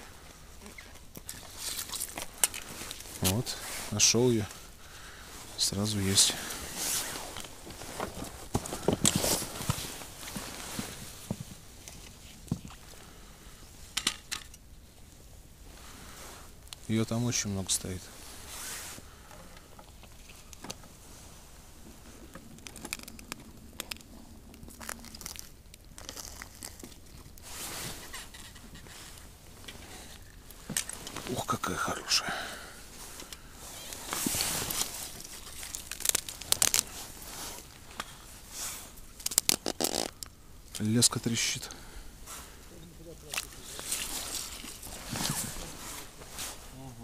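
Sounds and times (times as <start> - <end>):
rustle: 0.0 - 47.0
fishing line crackling: 0.8 - 3.3, 39.2 - 40.8.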